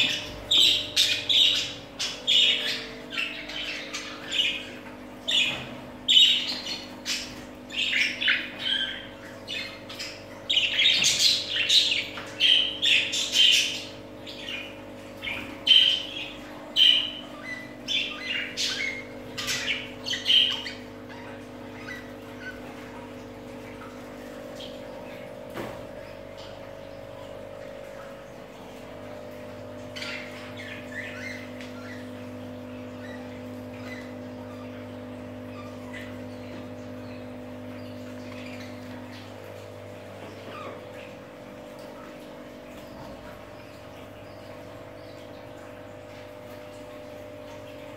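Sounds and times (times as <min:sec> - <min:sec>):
budgerigars chirping and squawking: 0:00.0 - 0:26.5, 0:27.9 - 0:46.8.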